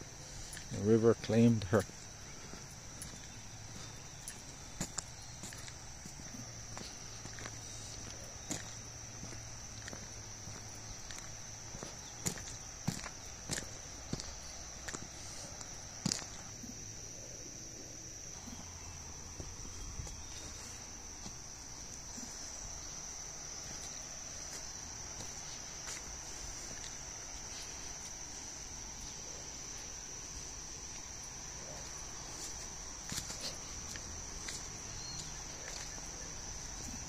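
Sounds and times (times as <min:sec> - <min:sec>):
insect chorus shrill tone: 0:00.0 - 0:37.0.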